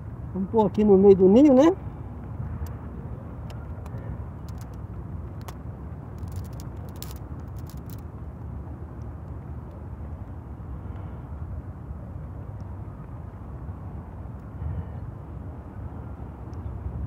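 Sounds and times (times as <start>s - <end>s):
steady low rumble: 0.0s - 17.0s
dry tinder rustling and crackling: 3.8s - 8.1s.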